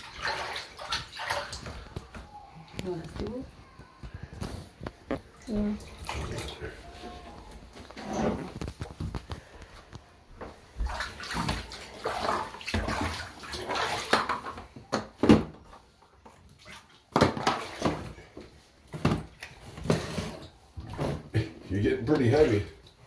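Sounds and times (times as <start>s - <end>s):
bathwater splashing in a tub: 0.0s - 3.5s, 5.2s - 8.8s, 10.7s - 21.3s.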